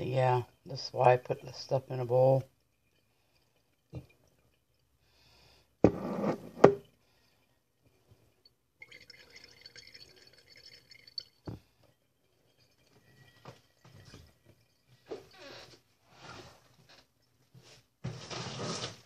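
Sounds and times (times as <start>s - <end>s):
liquid trickling and dripping: 1.4s - 5.5s, 6.9s - 17.8s
liquid splashing and pouring: 1.5s - 5.4s, 8.0s - 17.6s.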